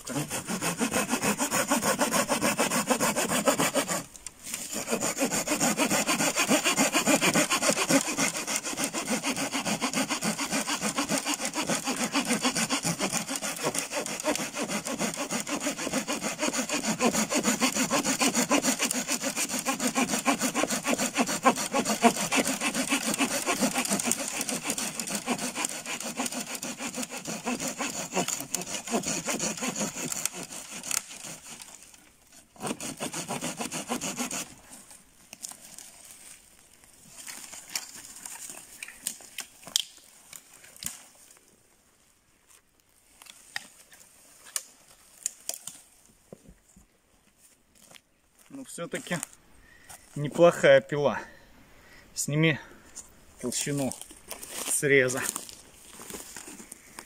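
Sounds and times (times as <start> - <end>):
hand saw cutting tree trunk: 0.0 - 36.4, 48.5 - 49.3, 53.4 - 56.8.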